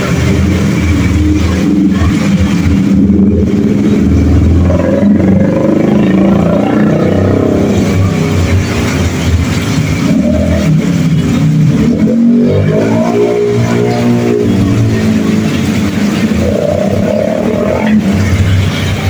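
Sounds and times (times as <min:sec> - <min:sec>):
heavy rain hiss: 0:00.0 - 0:19.0
scooter engines passing: 0:00.0 - 0:19.0.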